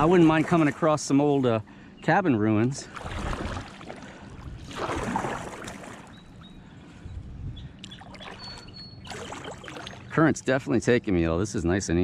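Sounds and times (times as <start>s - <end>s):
paddle splashing in water: 2.9s - 6.1s, 8.0s - 10.1s.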